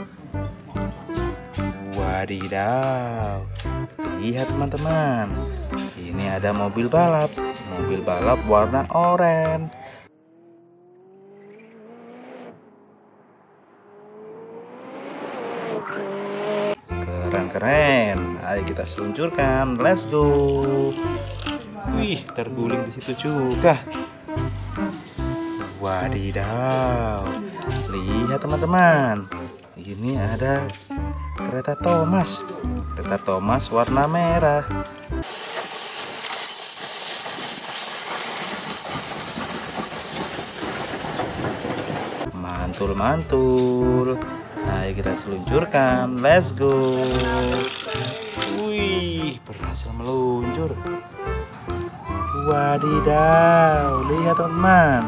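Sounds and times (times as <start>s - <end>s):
sports car engine: 10.1s - 16.8s
steam hissing: 35.2s - 42.3s
train wheels clattering on track: 36.8s - 42.3s.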